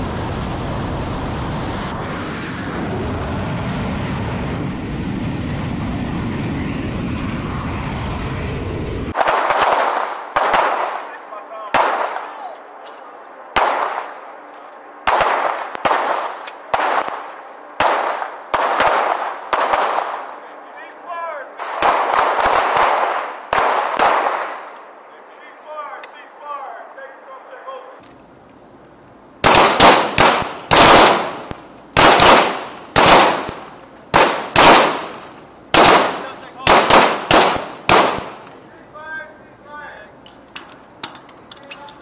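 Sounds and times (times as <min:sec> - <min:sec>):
pistol shots: 0:09.2 - 0:13.0, 0:13.6 - 0:14.2, 0:15.1 - 0:20.4, 0:21.6 - 0:24.7, 0:29.4 - 0:38.5.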